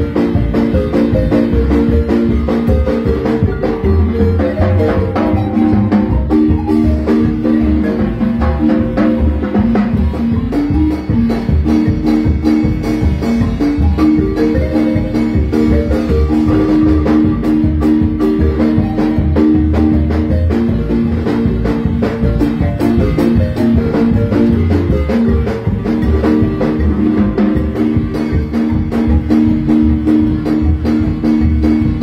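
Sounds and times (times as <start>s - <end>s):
marimba band playing dance music: 0.0s - 32.0s.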